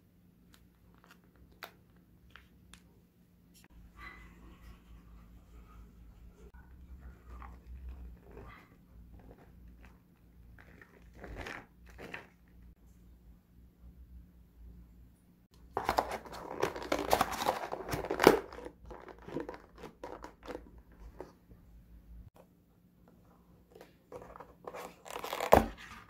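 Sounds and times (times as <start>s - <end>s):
plastic lid crinkling and clattering: 15.7s - 21.4s, 23.7s - 26.0s.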